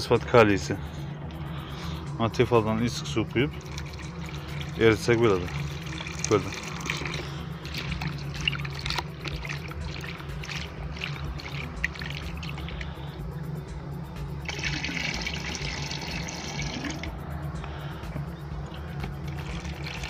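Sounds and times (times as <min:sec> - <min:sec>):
water sloshing in a bucket: 0:02.9 - 0:13.0, 0:14.4 - 0:17.1, 0:18.7 - 0:20.0
liquid pouring into a barrel: 0:03.4 - 0:12.9, 0:14.4 - 0:17.1, 0:19.1 - 0:20.0.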